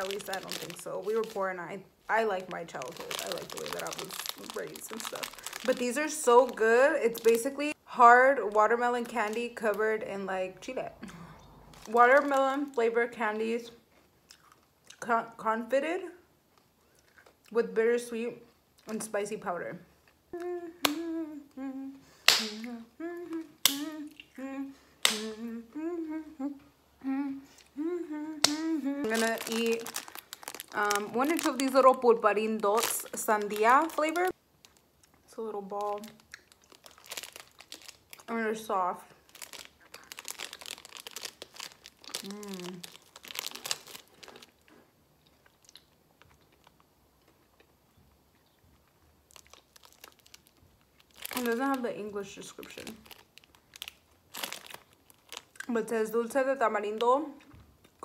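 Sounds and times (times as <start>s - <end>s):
faint chewing of candy: 2.8s - 5.9s, 13.9s - 15.0s, 16.5s - 17.6s, 34.2s - 38.3s, 39.1s - 51.8s
woman humming: 20.4s - 29.7s, 42.2s - 42.8s
fingers snapping: 28.4s - 28.7s.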